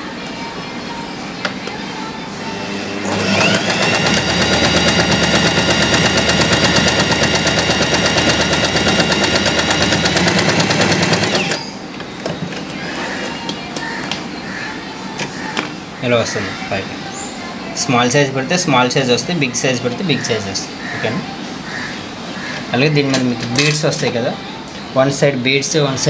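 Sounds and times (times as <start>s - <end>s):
electric sewing machine stitching: 2.6s - 11.7s.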